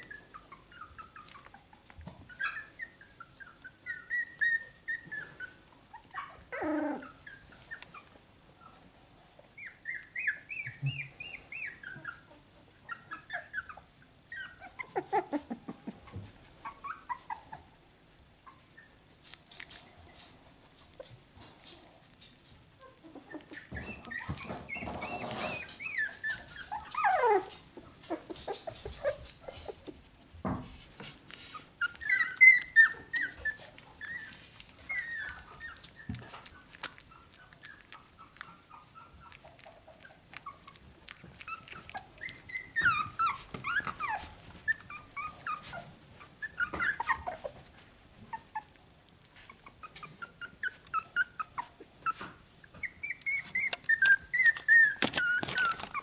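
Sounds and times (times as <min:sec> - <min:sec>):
puppies whimpering and squeaking: 0:00.0 - 0:56.0
small clicks and rustles: 0:00.3 - 0:02.5, 0:18.5 - 0:51.0, 0:51.6 - 0:56.0.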